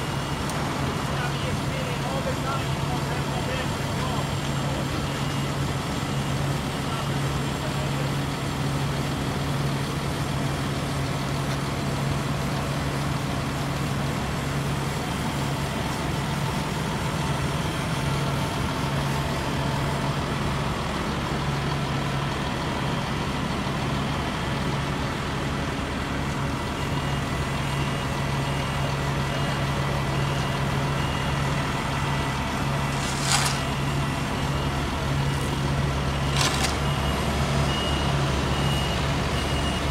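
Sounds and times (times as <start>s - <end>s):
diesel engines humming: 0.0s - 39.9s
backup alarm beeping: 36.2s - 39.9s.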